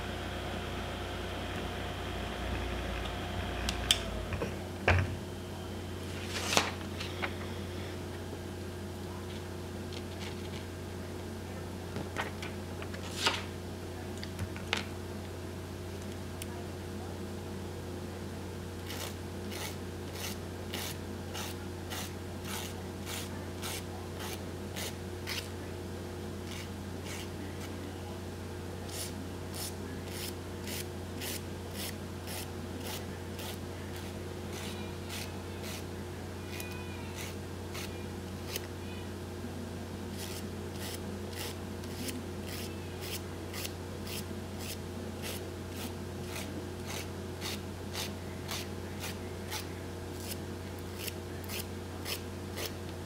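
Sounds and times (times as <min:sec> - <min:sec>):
low hum: 0:00.0 - 0:08.4
nail file rasping: 0:18.9 - 0:25.5.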